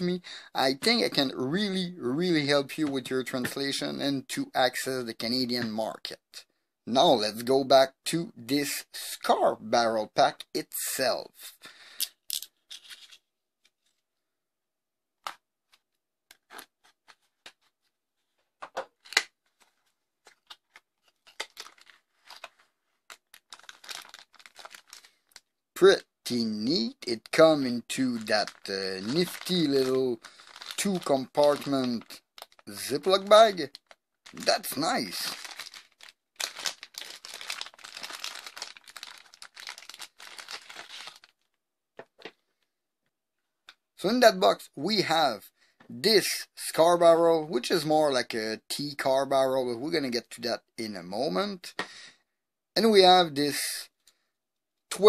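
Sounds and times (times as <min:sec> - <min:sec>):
plastic bag rustling: 0:18.9 - 0:25.4, 0:27.9 - 0:41.5.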